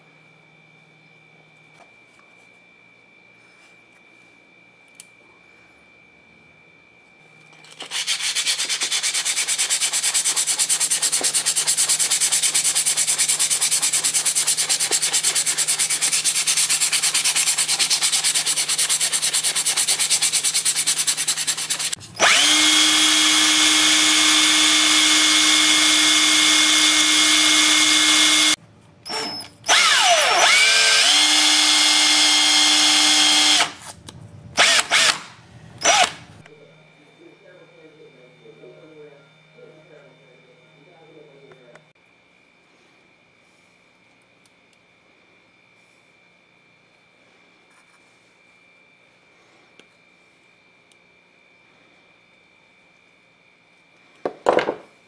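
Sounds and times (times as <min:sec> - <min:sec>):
hand sanding metal: 0:07.9 - 0:22.6
cordless drill whining: 0:21.7 - 0:33.9, 0:34.6 - 0:36.5.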